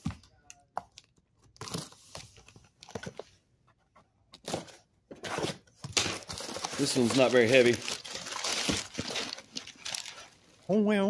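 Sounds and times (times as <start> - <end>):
cardboard scraping and rustling: 4.4 - 10.4.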